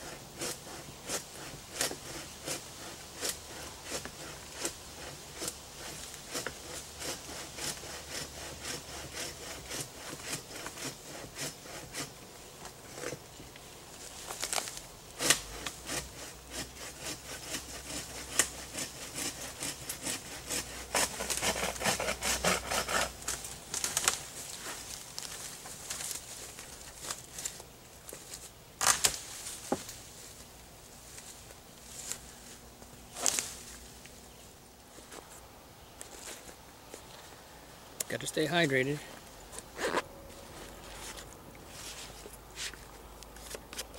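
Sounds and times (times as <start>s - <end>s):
hand saw cutting wood: 0.0s - 12.2s, 15.2s - 28.2s
sharp wood cracks: 14.2s - 16.1s, 18.3s - 30.0s.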